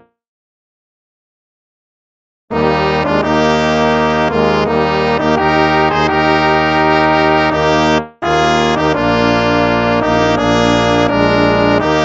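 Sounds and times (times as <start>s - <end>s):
instrumental hymn music: 2.5s - 12.0s.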